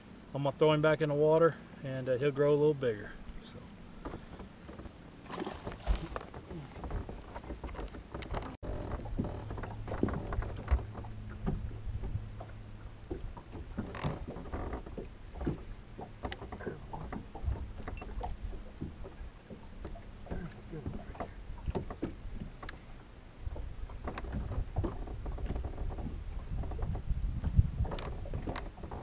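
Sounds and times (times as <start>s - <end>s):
knocks and clicks on boat deck: 4.0s - 29.0s
steady low hum: 8.1s - 27.8s.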